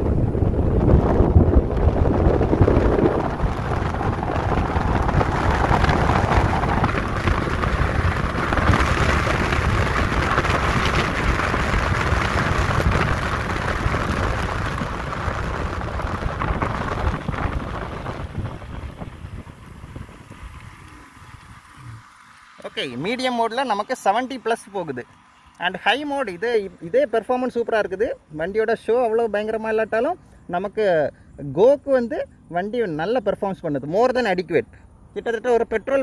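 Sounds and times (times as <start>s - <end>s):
wind buffeting microphone: 0.0s - 22.2s
road noise: 0.0s - 36.0s.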